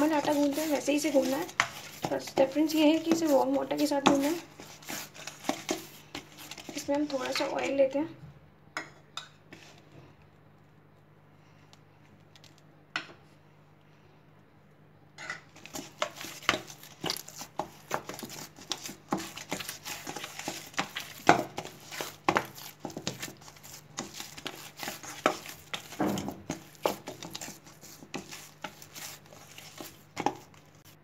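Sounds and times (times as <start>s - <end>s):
dough slapping against steel bowl: 0.0s - 7.5s, 15.7s - 31.0s.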